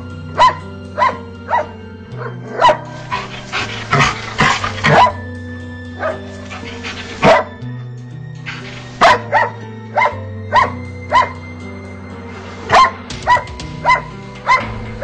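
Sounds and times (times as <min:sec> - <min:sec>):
background music: 0:00.0 - 0:15.0
dog barking: 0:00.3 - 0:05.2, 0:06.0 - 0:07.6, 0:08.5 - 0:11.4, 0:12.7 - 0:14.8.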